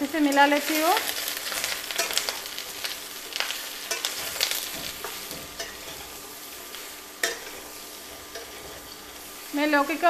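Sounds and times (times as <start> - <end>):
frying sizzle: 0.0 - 10.0
metal spatula scraping a pan: 0.2 - 9.6.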